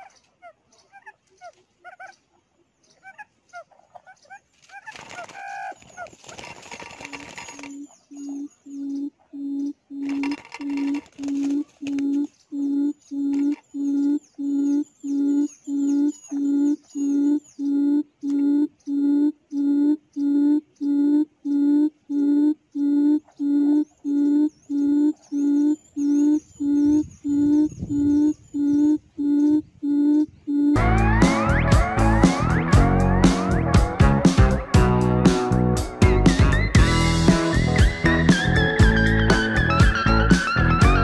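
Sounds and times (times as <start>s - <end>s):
quail call through loudspeaker: 0.0s - 2.2s, 3.0s - 6.1s, 23.3s - 33.8s
wings fluttering against net: 4.5s - 7.8s, 10.0s - 12.1s.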